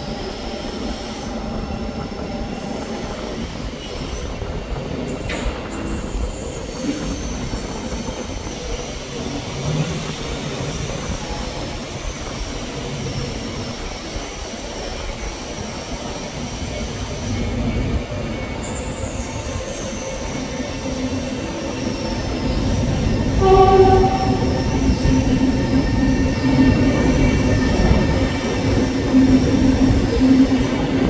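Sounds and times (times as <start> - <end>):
train rumbling on tracks: 0.0 - 31.0
high wheel squeal: 17.4 - 30.9.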